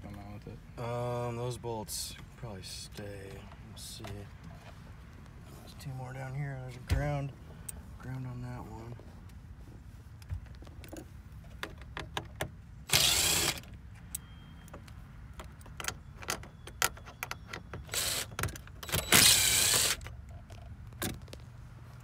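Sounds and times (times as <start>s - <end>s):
handling clicks and knocks: 10.2s - 12.6s, 14.0s - 19.0s
cordless drill running: 12.9s - 13.6s, 17.9s - 18.3s, 19.0s - 20.0s.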